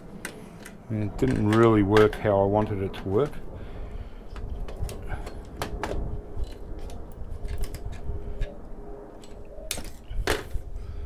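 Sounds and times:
metal tools clicking and scraping: 4.3s - 8.6s, 9.2s - 10.3s.

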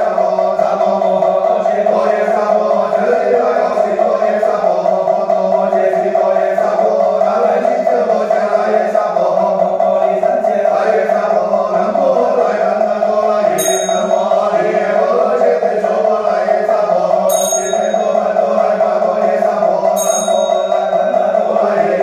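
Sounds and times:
monotone chanting: 0.0s - 22.0s
small bell struck: 13.6s - 14.4s, 17.3s - 18.3s, 20.0s - 21.1s.

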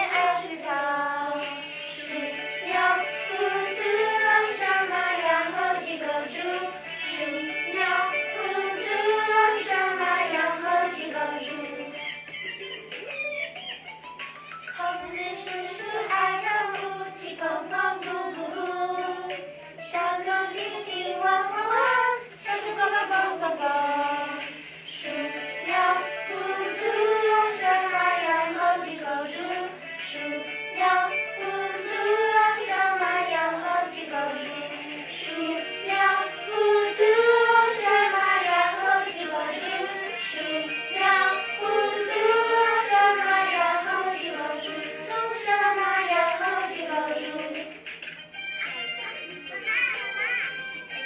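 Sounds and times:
children singing: 0.0s - 12.2s, 14.8s - 47.8s.

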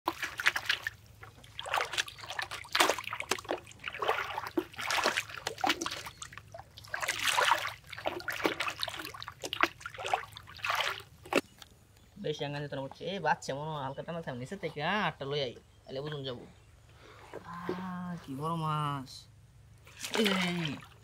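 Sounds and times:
float splashing on water: 0.1s - 11.6s, 19.9s - 21.0s.

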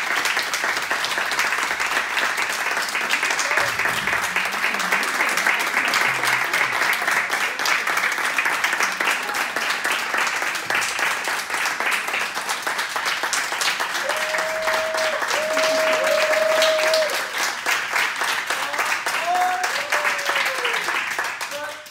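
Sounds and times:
group applauding: 0.0s - 21.9s.

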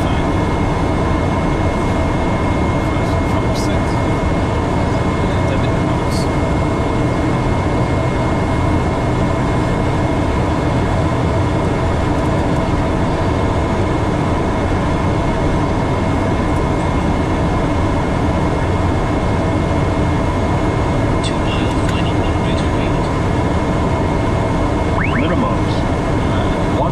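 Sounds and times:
cockpit airflow and engine hum: 0.0s - 26.9s
thin high whine: 24.9s - 26.7s.

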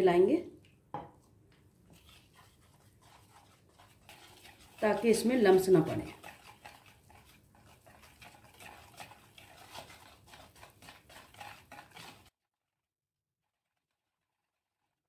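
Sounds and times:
whisk stirring batter in bowl: 1.8s - 12.4s.

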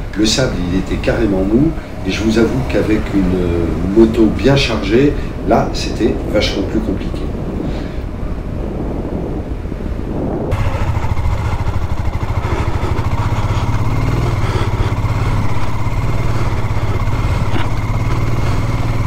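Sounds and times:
motorcycle engine running: 0.0s - 5.4s, 10.5s - 19.0s.

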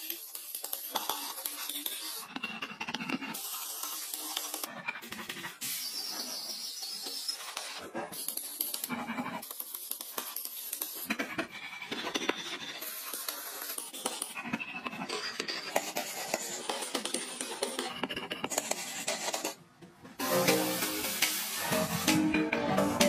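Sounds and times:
carving tools scraping wood: 0.0s - 19.6s.

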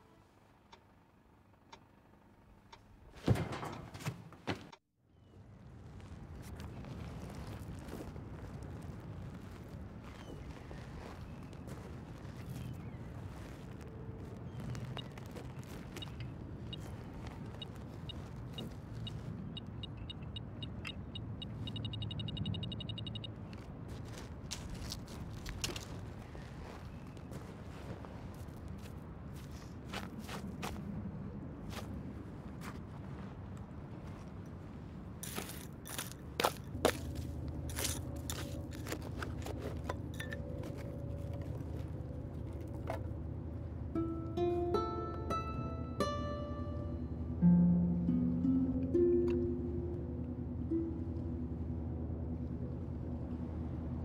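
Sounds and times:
steady low rumble: 5.1s - 44.8s, 45.7s - 54.0s
footsteps crunching on gravel: 6.0s - 19.4s, 23.6s - 30.8s, 35.2s - 42.8s
metal detector beeping: 17.6s - 23.3s
hands scraping sand and stones: 35.2s - 39.9s
plucked string music: 43.8s - 52.9s
low rumble: 48.1s - 54.0s.

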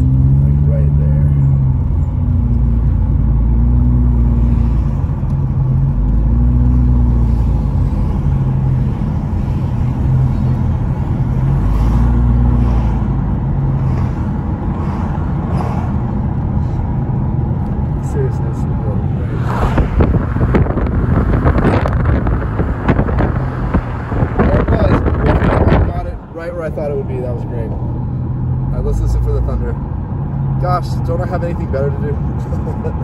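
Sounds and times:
car engine hum: 0.0s - 33.0s
tyre and wind noise: 19.5s - 26.2s.

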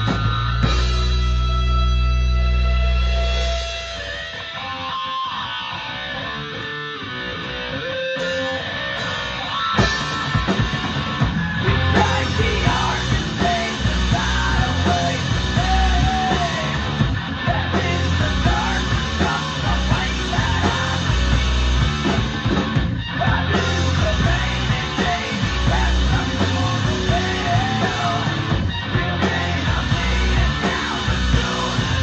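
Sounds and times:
electric bass: 0.0s - 32.0s
electric guitar: 0.0s - 32.0s
drum kit beat: 8.2s - 32.0s.

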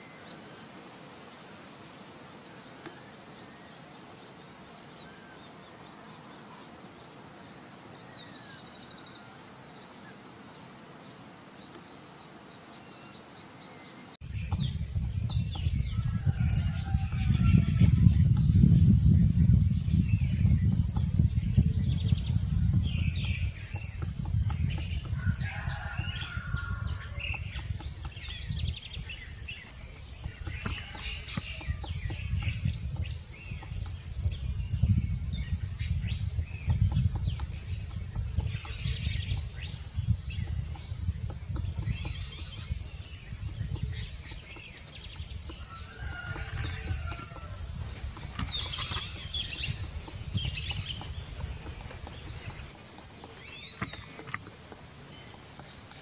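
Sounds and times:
bird chirps and calls: 48.3s - 52.7s.

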